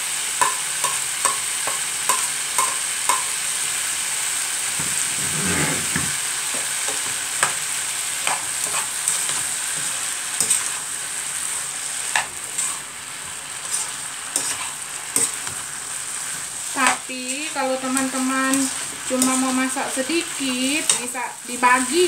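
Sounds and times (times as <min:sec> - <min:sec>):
food sizzling in a pan: 0:00.0 - 0:22.0
utensil tapping against pan: 0:00.4 - 0:03.3.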